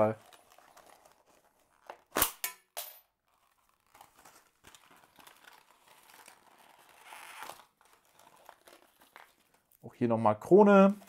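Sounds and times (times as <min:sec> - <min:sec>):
paper crinkling and rustling: 0:00.0 - 0:02.1, 0:03.2 - 0:09.8.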